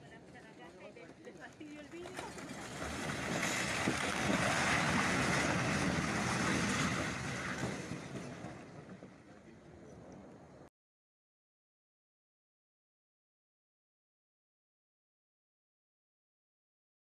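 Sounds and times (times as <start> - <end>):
house collapsing rumble: 2.3 - 9.2.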